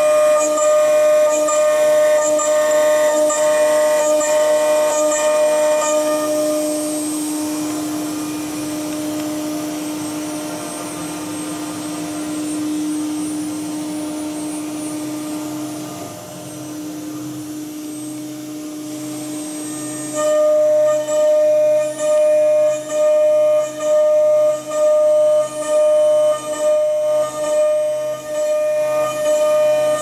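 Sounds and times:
pulsing tone: 0.0 - 16.9
machinery humming: 0.0 - 30.0.

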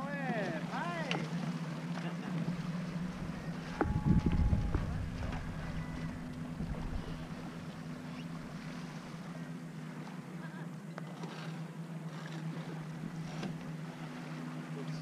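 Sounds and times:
steady low hum: 1.3 - 15.0
wind on microphone: 3.0 - 7.6.

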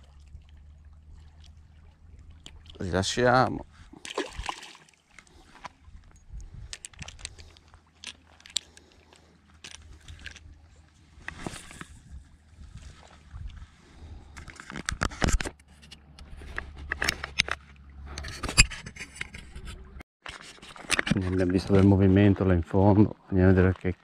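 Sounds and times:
low steady rumble: 0.0 - 2.9.

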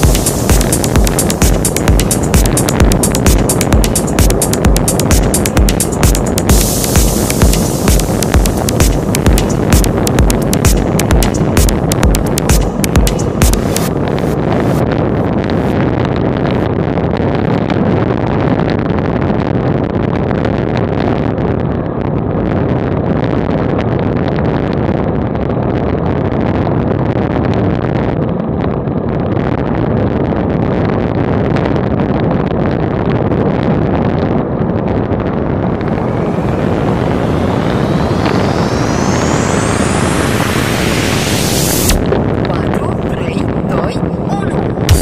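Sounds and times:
wind rushing over microphone: 0.0 - 45.0
faint rising whine: 34.7 - 45.0.

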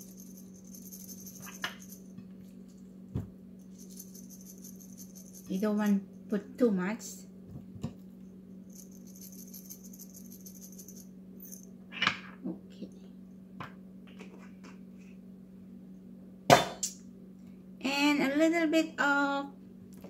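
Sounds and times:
pepper shaker rattling: 0.0 - 2.1, 3.6 - 5.9, 8.6 - 11.7
faint steady hum: 0.0 - 20.0.

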